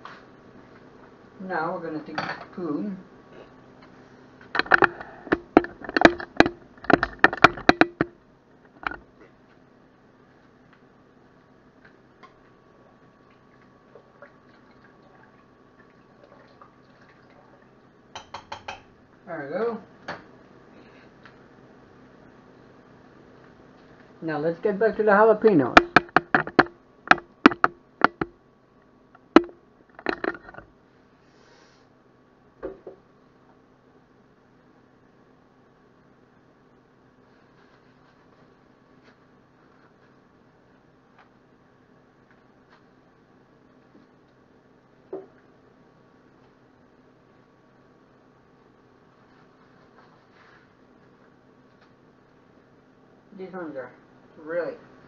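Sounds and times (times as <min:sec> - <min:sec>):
camera handling knocks and clicks: 0:04.6 - 0:08.1, 0:25.8 - 0:28.4, 0:29.2 - 0:30.6.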